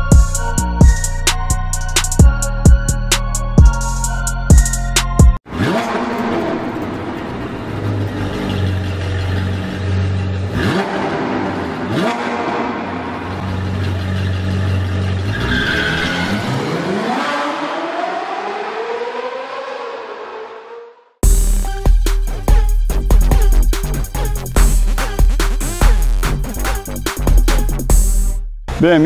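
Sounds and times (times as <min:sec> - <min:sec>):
sports car engine revving: 0:05.4 - 0:21.0.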